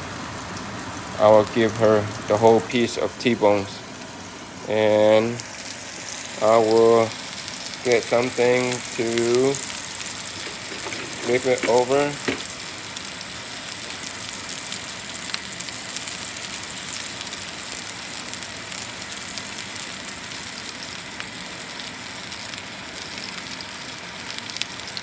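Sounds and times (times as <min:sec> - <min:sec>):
steak sizzling in a frying pan: 0:00.1 - 0:25.0.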